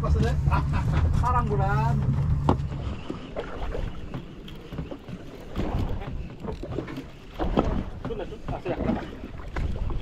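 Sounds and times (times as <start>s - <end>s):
water sloshing against boat hull: 0.0s - 10.0s.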